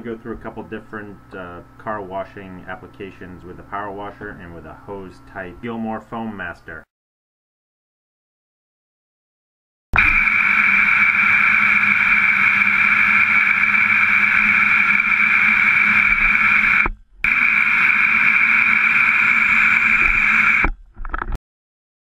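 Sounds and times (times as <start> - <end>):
hose sprayer hissing water: 10.0 - 20.6.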